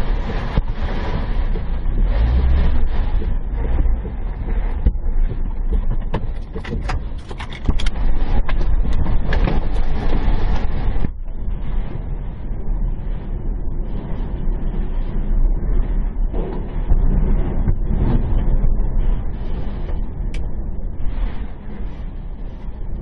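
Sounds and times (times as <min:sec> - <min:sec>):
wind and rain buffeting a car: 0:00.0 - 0:23.0
sharp knocks and clicks: 0:03.1 - 0:09.7.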